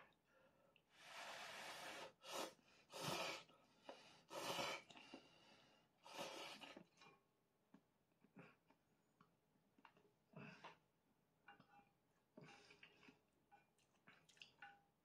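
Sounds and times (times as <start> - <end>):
noodles being slurped: 4.3 - 5.3, 6.1 - 7.2.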